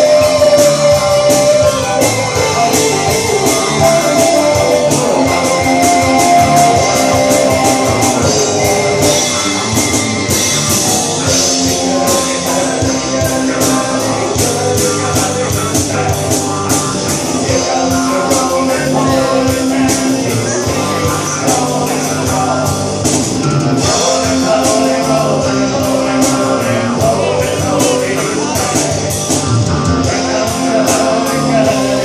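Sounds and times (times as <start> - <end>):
harmonica high note: 0.0 - 12.4
man singing: 0.0 - 23.2, 23.8 - 32.0
rock band playing: 0.0 - 32.0.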